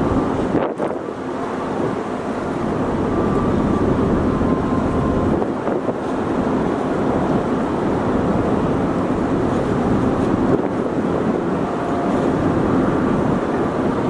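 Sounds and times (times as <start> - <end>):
ship engine and ventilation drone: 0.0 - 14.0
wind on microphone: 0.0 - 14.0.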